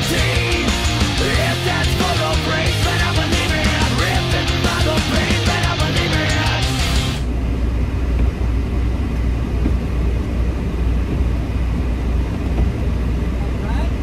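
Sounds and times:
heavy rock music: 0:00.0 - 0:07.3
truck diesel engine rumbling: 0:00.0 - 0:14.0.

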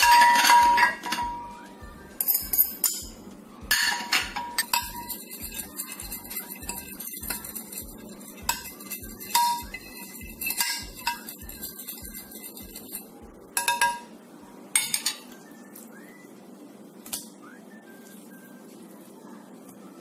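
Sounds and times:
metal spoon clinking in glass dish: 0:00.0 - 0:01.4, 0:03.7 - 0:14.1.

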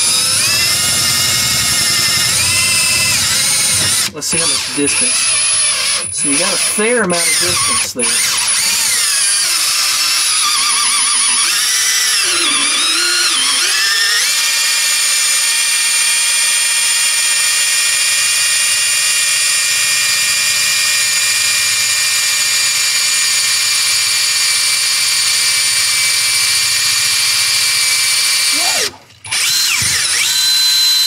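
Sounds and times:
cordless drill boring into wood: 0:00.0 - 0:31.0.

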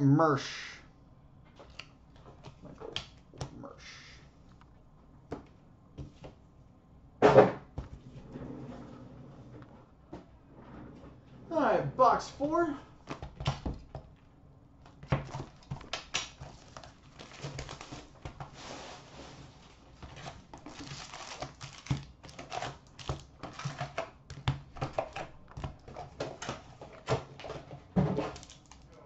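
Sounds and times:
foil packs tapping and rustling: 0:14.8 - 0:29.0
plastic wrap crinkling: 0:15.0 - 0:24.1, 0:28.2 - 0:29.0.

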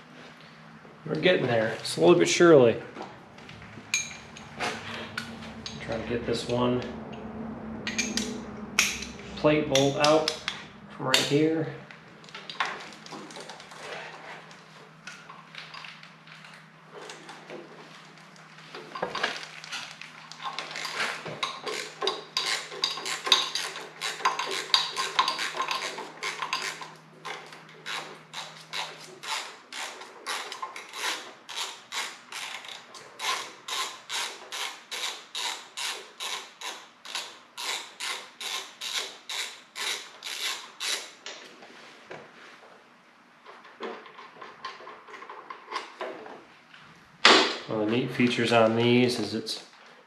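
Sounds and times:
ratchet pawl clicking: 0:27.8 - 0:41.1.

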